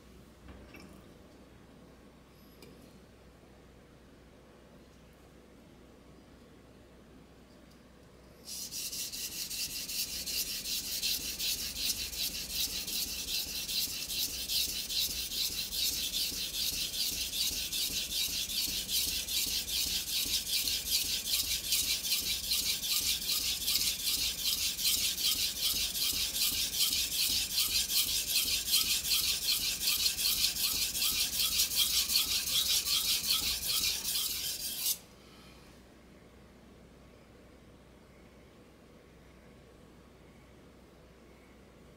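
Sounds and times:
knife rasping on whetstone: 0:08.5 - 0:35.0.

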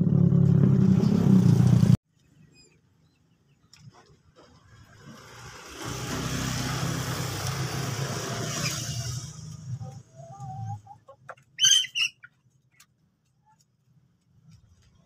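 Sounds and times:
motorcycle engine: 0:00.0 - 0:02.0, 0:04.4 - 0:10.1
vehicle passing: 0:04.6 - 0:10.9.

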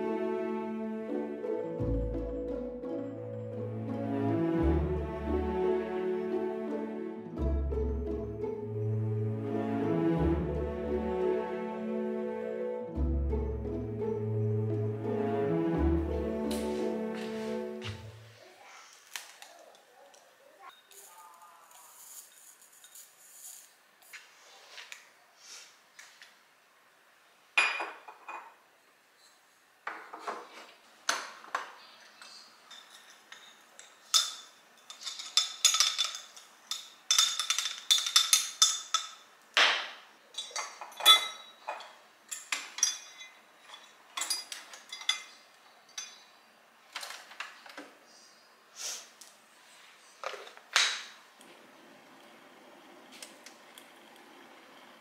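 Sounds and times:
glass set down on stone: 0:27.6 - 0:28.5
ringing clinks of glass and metal: 0:40.4 - 0:41.8, 0:42.8 - 0:46.3.

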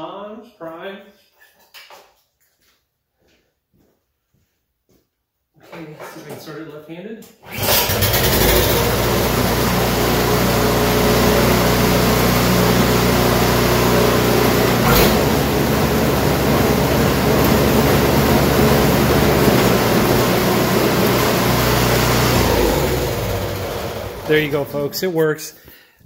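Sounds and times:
snowblower engine running: 0:07.5 - 0:25.0.

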